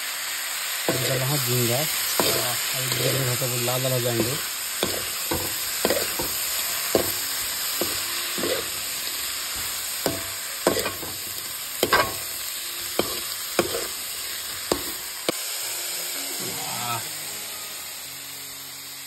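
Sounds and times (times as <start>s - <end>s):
prawns sizzling in a wok: 0.0s - 19.0s
metal ladle scraping a pan: 0.9s - 15.1s.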